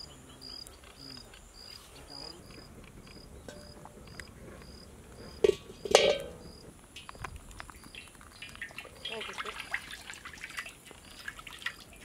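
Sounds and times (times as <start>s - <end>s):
insect chirping: 0.0s - 12.0s
iron pan clanking on metal stand: 3.5s - 4.0s, 5.4s - 7.1s.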